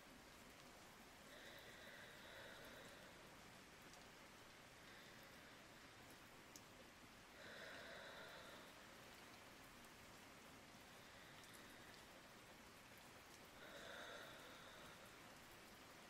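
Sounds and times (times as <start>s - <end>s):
faint hiss: 0.0s - 16.0s
person breathing softly asleep: 1.2s - 4.0s, 4.6s - 6.2s, 7.3s - 9.4s, 10.7s - 12.4s, 13.5s - 16.0s.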